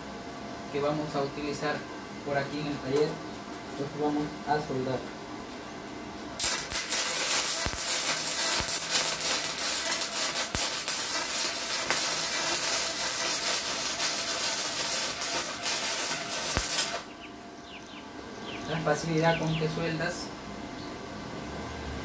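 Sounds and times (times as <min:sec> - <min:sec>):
welding arc crackling hiss: 0:06.2 - 0:17.2.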